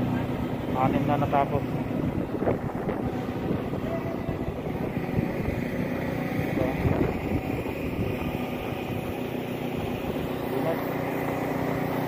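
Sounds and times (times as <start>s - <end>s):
truck engine running: 0.0s - 12.0s
wind buffeting microphone: 1.7s - 10.4s.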